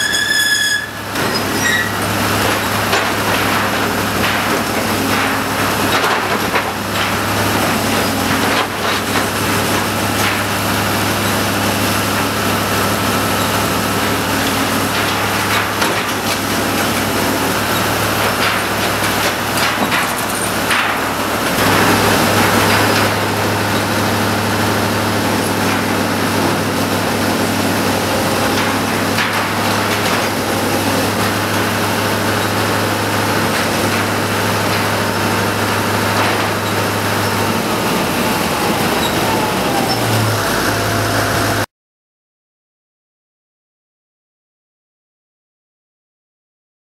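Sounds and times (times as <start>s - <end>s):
excavator engine running: 0.0s - 41.6s.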